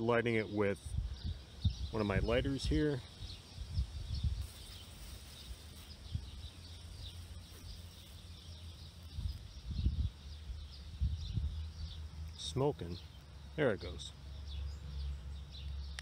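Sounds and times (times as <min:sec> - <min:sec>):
faint bird chirps: 0:00.2 - 0:16.0
wind rumbling on microphone: 0:00.8 - 0:12.3.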